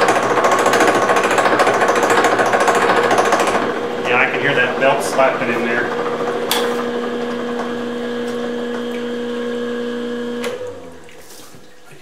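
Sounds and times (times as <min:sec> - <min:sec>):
milling machine humming: 0:00.0 - 0:12.0
sharp click: 0:06.5 - 0:06.7.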